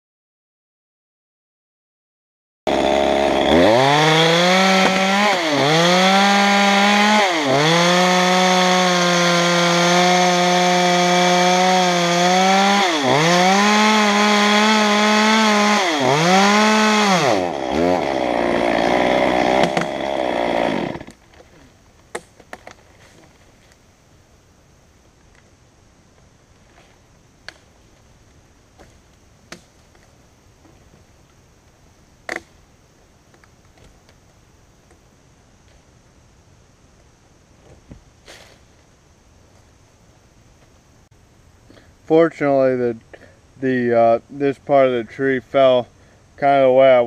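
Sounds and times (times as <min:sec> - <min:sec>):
chainsaw cutting log: 0:02.7 - 0:22.7, 0:32.3 - 0:32.5.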